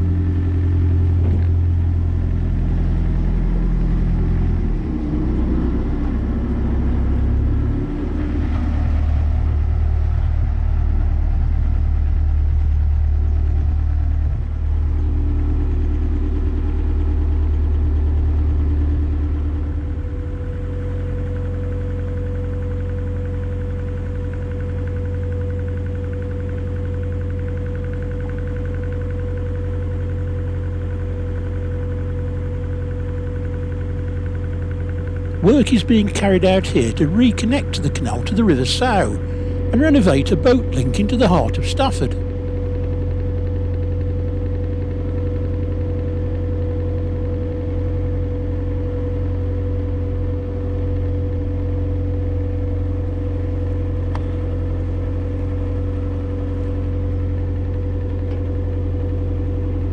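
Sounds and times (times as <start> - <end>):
diesel boat engine running: 0.0 - 59.9
steady hum: 34.7 - 45.4.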